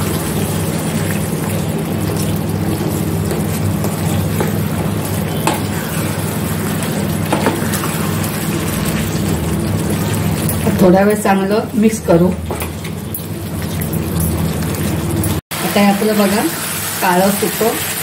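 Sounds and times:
soft sizzle: 0.0 - 18.0
spatula knocking on pan: 2.8 - 5.8
spatula scraping frying pan: 2.8 - 10.5.

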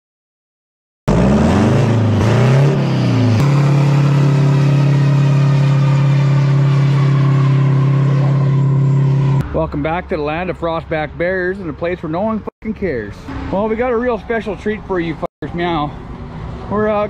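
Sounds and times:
truck diesel engine revving: 1.1 - 9.9.

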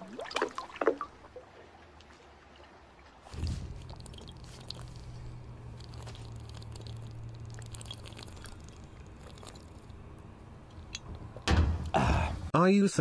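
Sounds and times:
low steady hum: 0.0 - 12.5
man gulping water: 3.4 - 10.2
wet mouth clicks: 3.8 - 10.0.

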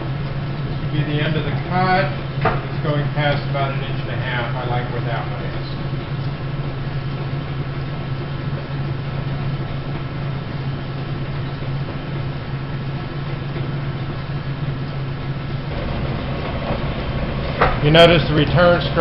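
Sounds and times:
electric motor hum: 0.0 - 19.0
machine table rumbling: 15.6 - 19.0.

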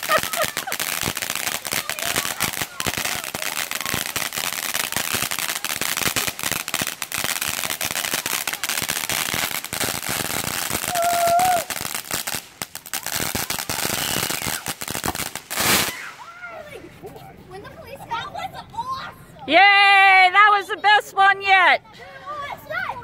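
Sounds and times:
firework crackling: 0.0 - 16.8.

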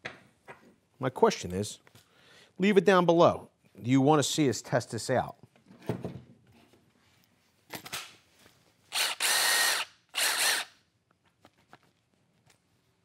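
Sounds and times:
impact driver motor whining: 8.9 - 10.7.

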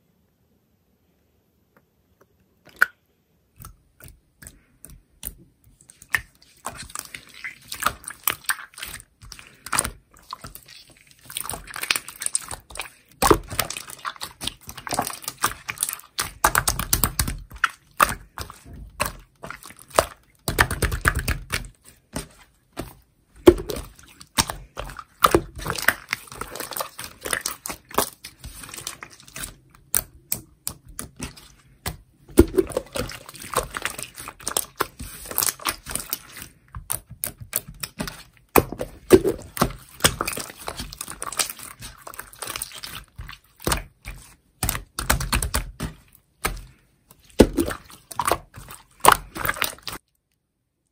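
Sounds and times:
slime squishing: 3.5 - 50.3.

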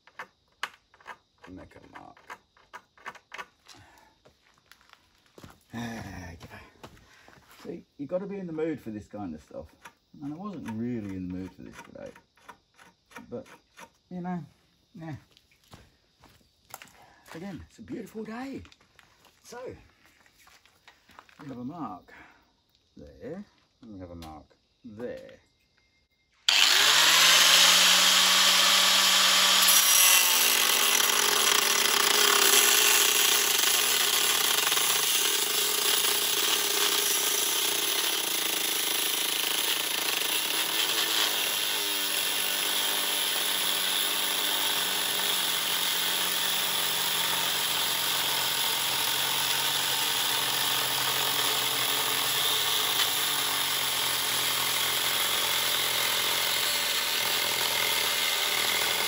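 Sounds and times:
angle grinder cutting metal: 26.5 - 59.0.

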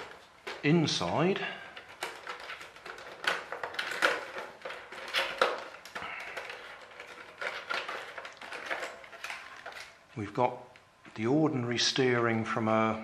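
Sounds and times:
plastic clicks and creaks: 0.0 - 10.0.

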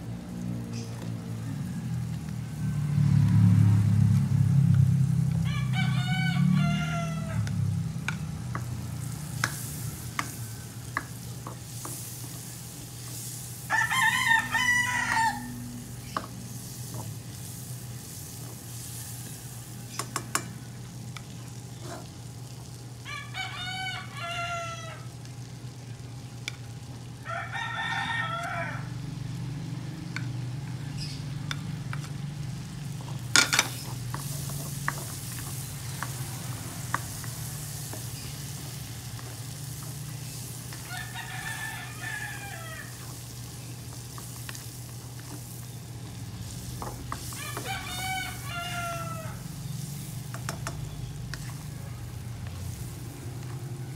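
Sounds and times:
food sizzling in a wok: 0.0 - 53.9
rooster crowing: 1.0 - 11.3, 13.6 - 16.5, 18.7 - 20.9, 23.0 - 25.2, 27.2 - 29.9, 40.7 - 43.3, 47.1 - 49.8
spatula stirring and tapping pan: 7.4 - 13.3, 16.0 - 17.6, 18.2 - 20.6, 32.9 - 41.0, 42.9 - 48.4, 49.7 - 52.8.

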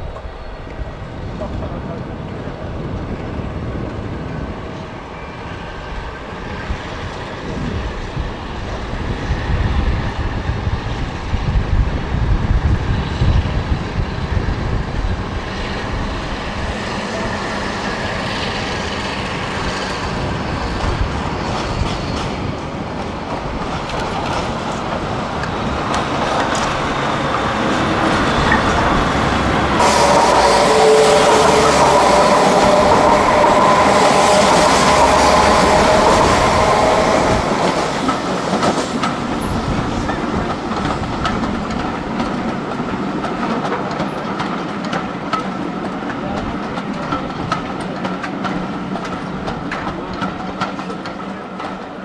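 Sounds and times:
train wheels clicking over rail joints: 12.4 - 52.0.

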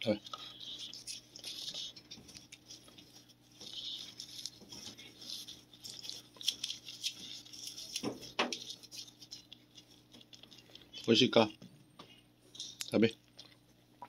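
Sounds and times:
cat chewing meat: 0.2 - 11.1.

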